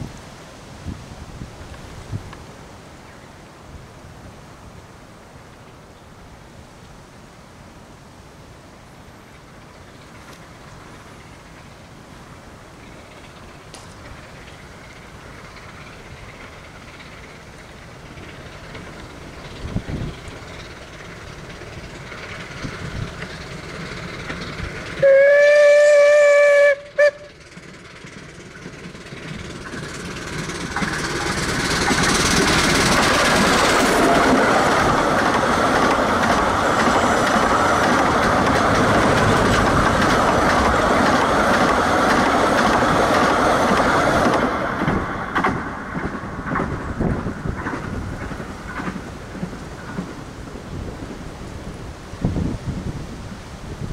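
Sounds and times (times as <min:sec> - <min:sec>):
train passing close by: 0:08.0 - 0:53.9
rail-joint clicks: 0:12.8 - 0:51.7
steam whistle toots: 0:25.0 - 0:27.4.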